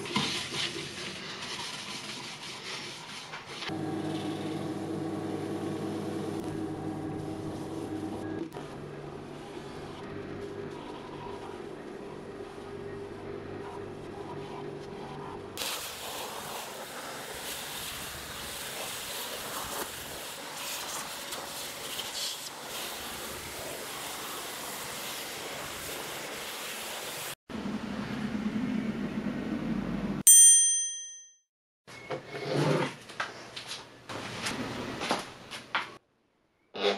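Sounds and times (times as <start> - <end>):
vacuum cleaner running: 3.7 - 12.1, 22.5 - 27.4
bright bell-like ding: 30.3 - 31.4.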